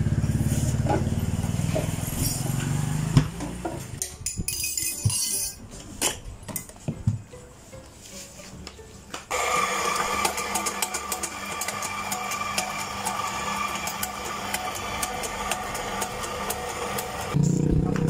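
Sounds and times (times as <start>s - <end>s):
blender motor whining: 9.3s - 18.0s.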